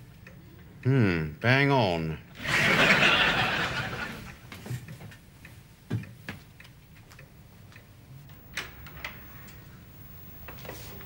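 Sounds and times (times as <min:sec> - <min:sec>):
audience laughter: 0:02.4 - 0:04.4.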